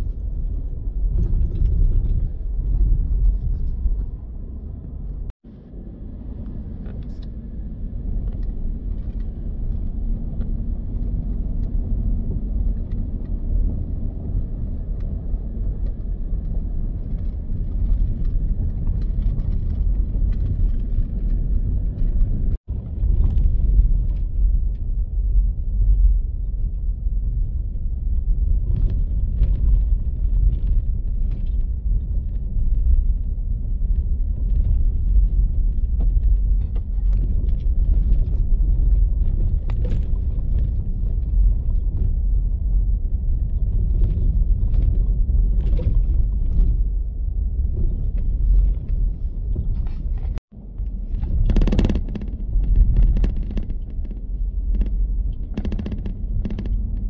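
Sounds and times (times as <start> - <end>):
truck engine and tyres rumbling: 0.0 - 57.0
knocks and rattles over bumps: 8.2 - 24.5, 28.4 - 57.0.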